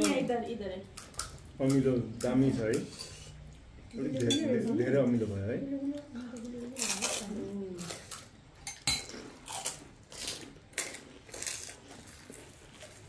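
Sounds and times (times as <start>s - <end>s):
spoons clinking on bowls: 8.6s - 9.2s
crisp shells crunching: 9.4s - 13.0s.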